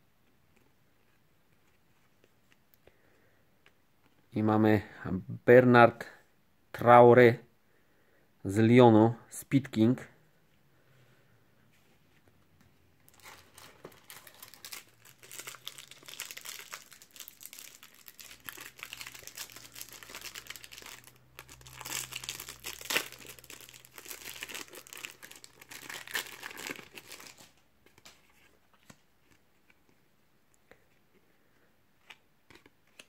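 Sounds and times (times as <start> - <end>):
foil wrapper crackles: 13.1 - 27.5
foil wrapper crinkling: 13.1 - 27.6.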